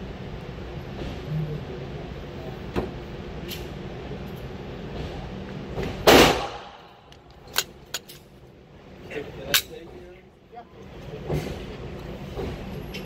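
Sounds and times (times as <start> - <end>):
steady background hum: 0.0 - 13.0
gunshot: 6.0 - 6.8.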